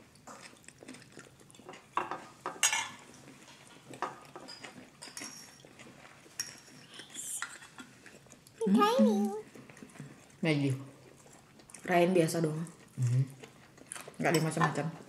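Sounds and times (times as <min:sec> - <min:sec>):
cutlery clinking on ceramic bowls: 0:01.7 - 0:03.1, 0:04.0 - 0:05.8, 0:06.4 - 0:07.8, 0:14.2 - 0:15.0.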